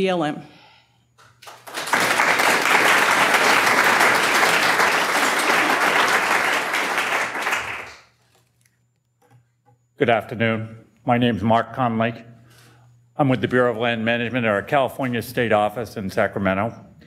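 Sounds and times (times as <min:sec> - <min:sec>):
audience applauding: 0:01.4 - 0:08.1.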